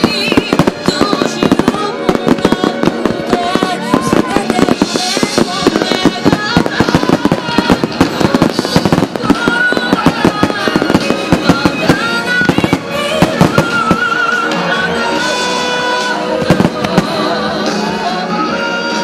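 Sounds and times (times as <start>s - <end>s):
fireworks bursting: 0.0s - 19.0s.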